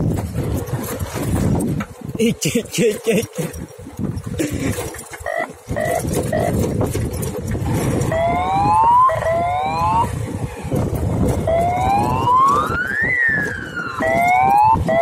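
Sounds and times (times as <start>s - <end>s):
motorcycle engine rumbling and whining: 3.5s - 15.0s.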